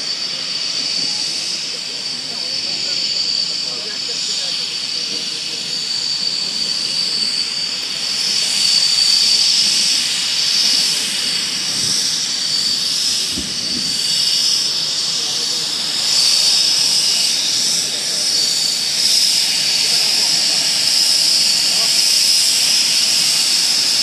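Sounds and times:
jet engine whine and rush: 0:00.0 - 0:24.0.

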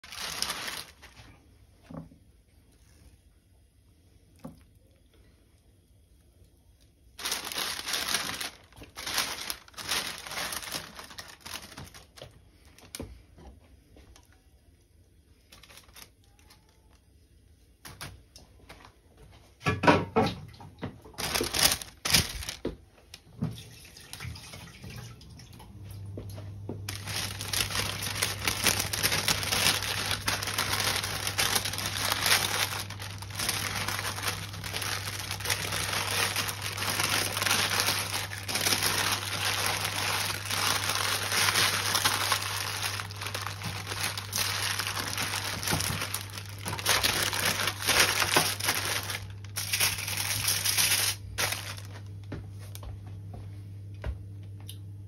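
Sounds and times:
paper and foil crinkling: 0:00.0 - 0:02.0, 0:07.1 - 0:14.5, 0:15.3 - 0:17.1, 0:20.8 - 0:24.5, 0:26.9 - 0:52.2.

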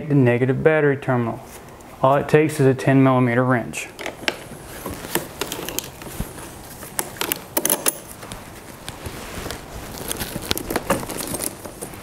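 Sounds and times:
wrench and cable clamp clinking: 0:07.0 - 0:08.2.

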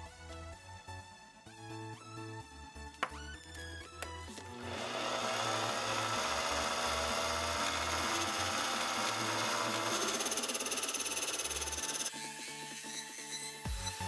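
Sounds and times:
background music: 0:00.0 - 0:14.0
lathe tool cutting hiss: 0:04.7 - 0:13.6.

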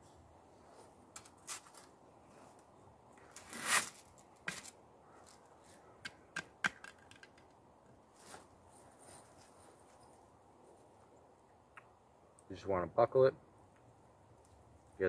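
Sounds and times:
metal helmet scraping rustle: 0:00.7 - 0:02.6, 0:03.2 - 0:05.8, 0:08.1 - 0:10.2.

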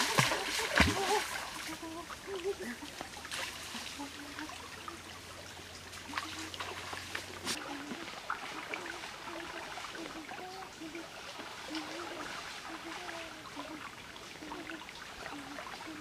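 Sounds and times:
faint short splashes: 0:00.0 - 0:05.0
stream trickling over rocks: 0:00.0 - 0:16.0.

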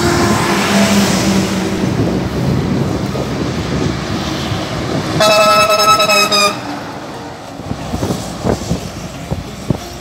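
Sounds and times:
truck engine and road noise: 0:00.0 - 0:10.0
truck horn blast: 0:05.1 - 0:06.9.

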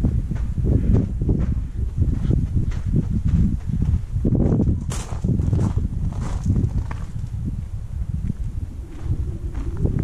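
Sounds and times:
footsteps crunching on gravel: 0:01.4 - 0:07.3
low uneven rumble: 0:05.4 - 0:10.0.

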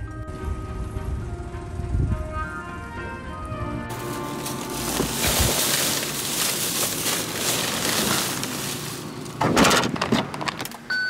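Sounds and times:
plastic bags rustling: 0:03.9 - 0:10.0.

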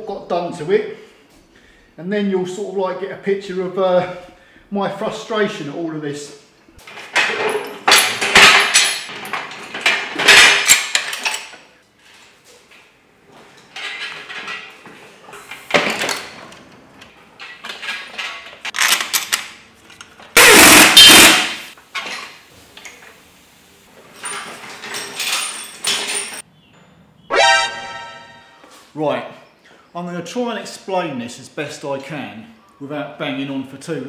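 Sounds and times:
metal clanking and rattling: 0:06.8 - 0:11.6.

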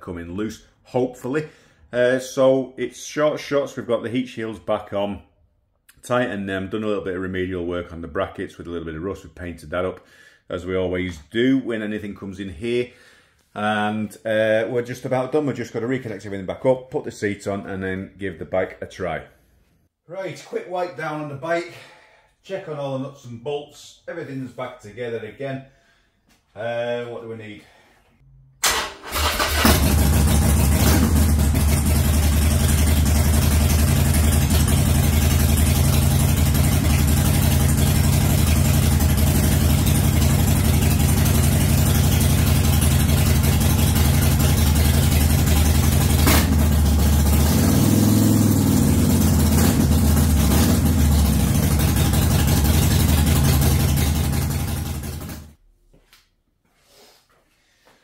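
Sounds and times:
motorcycle engine idling: 0:29.5 - 0:47.5, 0:48.4 - 0:55.5.

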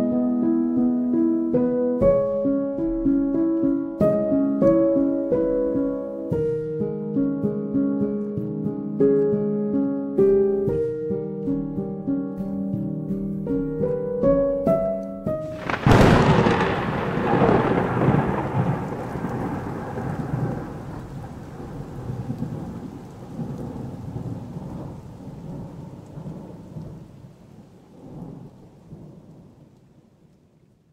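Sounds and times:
plucked music notes: 0:00.0 - 0:16.8
thunder rolling: 0:15.4 - 0:30.0.

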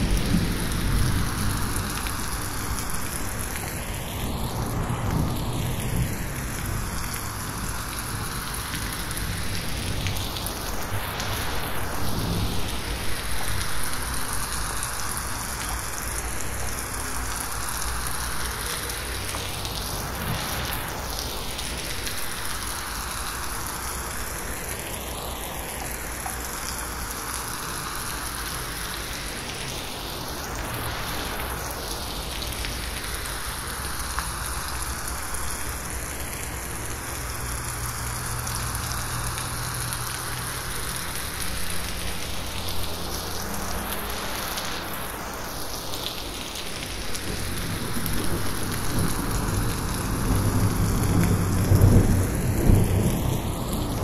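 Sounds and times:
distant thunder rumble: 0:00.0 - 0:03.0, 0:47.3 - 0:54.0
rain falling on leaves: 0:00.0 - 0:54.0.

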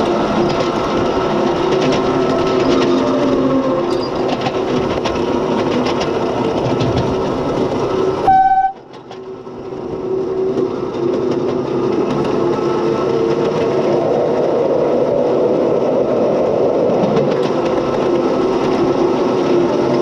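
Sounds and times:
miniature locomotive running: 0:00.0 - 0:20.0
wheels clicking on rails: 0:00.0 - 0:20.0
locomotive horn blast: 0:08.2 - 0:08.9.

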